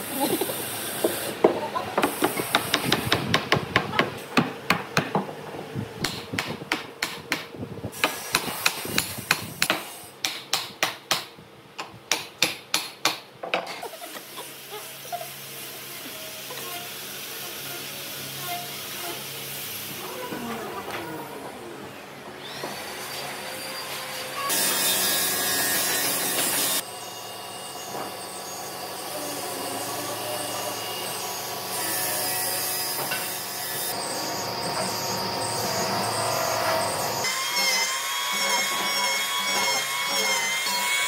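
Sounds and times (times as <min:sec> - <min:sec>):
hammer striking wood: 0:01.0 - 0:05.3, 0:06.0 - 0:13.2.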